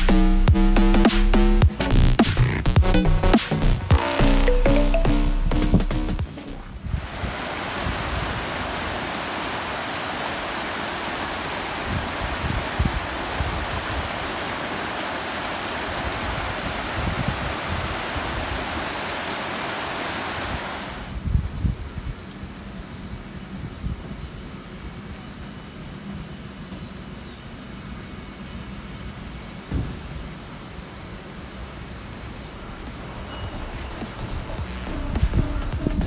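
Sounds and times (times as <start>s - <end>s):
quiet outdoor background: 0.0s - 36.0s
river water rushing over rocks: 7.0s - 21.1s.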